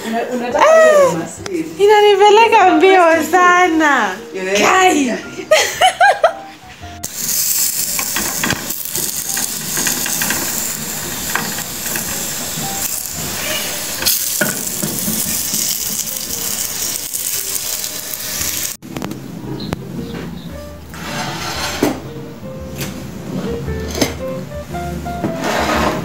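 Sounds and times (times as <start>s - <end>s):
food sizzling in hot oil: 7.0s - 18.8s.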